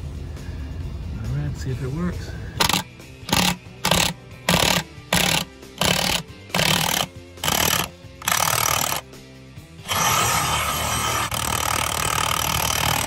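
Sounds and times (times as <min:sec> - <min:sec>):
impact wrench hammering: 0:02.6 - 0:09.0, 0:09.9 - 0:13.0.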